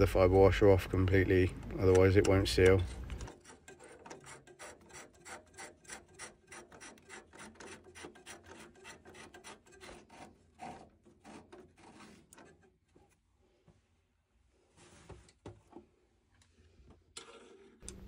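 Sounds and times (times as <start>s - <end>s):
pipe fitting scraping clicks: 1.1s - 12.7s.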